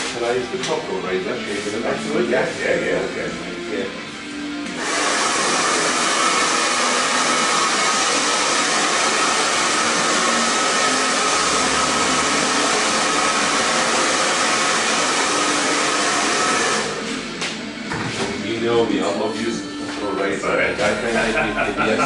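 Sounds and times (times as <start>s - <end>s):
hair dryer blowing: 4.7s - 17.6s.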